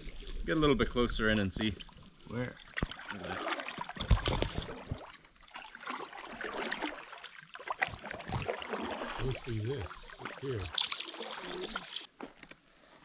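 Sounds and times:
water splashing and dripping: 1.3 - 12.1
paddle strokes in water: 2.6 - 13.0.

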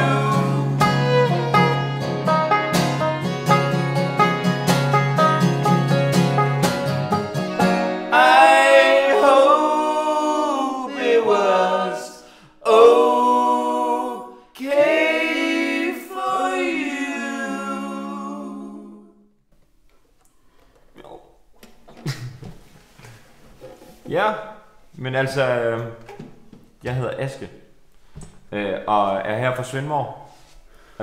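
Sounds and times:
person singing long held notes: 0.0 - 1.6, 8.1 - 11.4, 15.8 - 19.1
faint shuffles: 30.2 - 30.9.

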